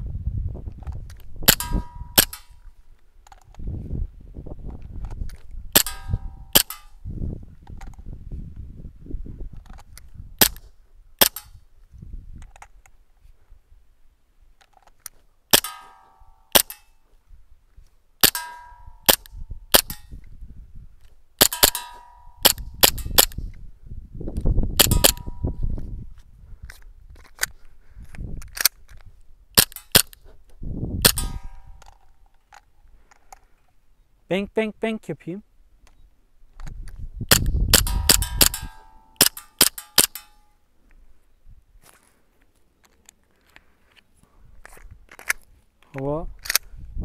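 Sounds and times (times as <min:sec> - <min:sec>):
airsoft pistol shots: 0:01.5 - 0:02.5, 0:05.7 - 0:06.9, 0:11.2 - 0:11.5, 0:15.5 - 0:16.9, 0:18.2 - 0:20.1, 0:21.4 - 0:23.4, 0:24.8 - 0:25.4, 0:31.0 - 0:31.8, 0:37.3 - 0:40.4
pellets ringing on steel targets: 0:15.6 - 0:16.8, 0:18.3 - 0:19.1, 0:21.5 - 0:22.4.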